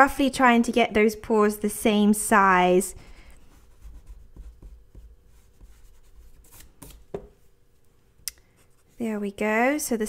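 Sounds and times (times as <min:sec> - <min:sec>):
eraser rubbing on paper: 0:03.4 - 0:07.0.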